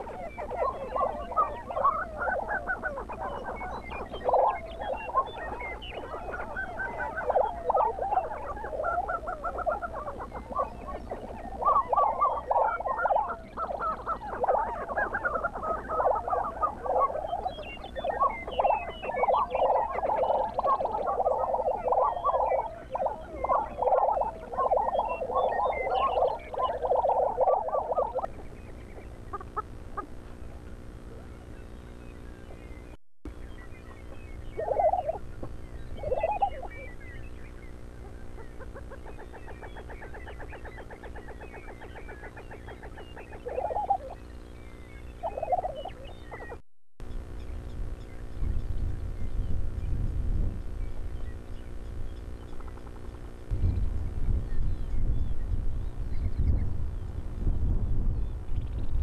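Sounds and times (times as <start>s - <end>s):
prairie chickens calling: 0.0s - 57.3s.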